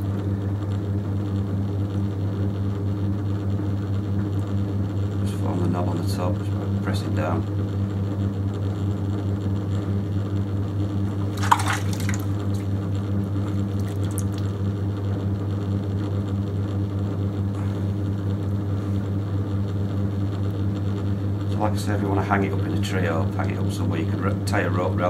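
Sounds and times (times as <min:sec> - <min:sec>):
potter's wheel humming: 0:05.1 - 0:15.4
wet clay squelch: 0:11.1 - 0:12.7, 0:13.8 - 0:14.5.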